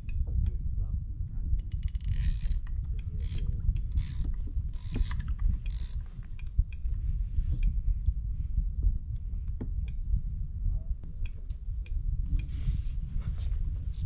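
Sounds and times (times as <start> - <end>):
steady low rumble: 0.0 - 14.0
fishing reel ratchet clicking: 1.6 - 6.8.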